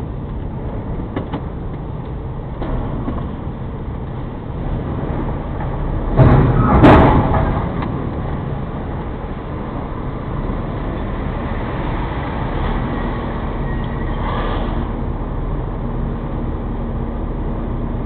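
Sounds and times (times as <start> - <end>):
loud burst of noise: 4.8 - 9.0.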